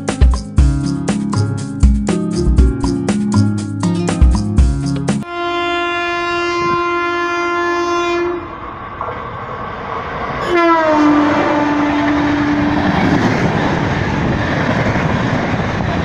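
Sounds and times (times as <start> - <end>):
locomotive horn: 5.2 - 8.5, 10.4 - 13.1
train coaches rushing and clattering: 8.5 - 16.0.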